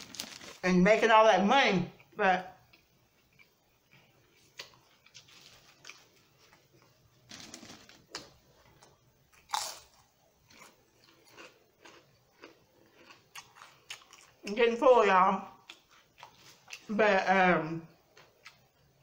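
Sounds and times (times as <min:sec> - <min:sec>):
person crunching chips: 0:00.0 - 0:00.6, 0:04.5 - 0:14.4.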